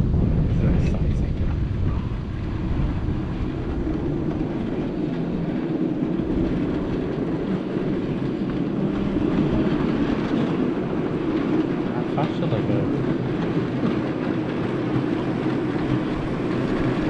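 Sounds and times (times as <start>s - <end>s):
miniature train running: 3.8s - 17.0s.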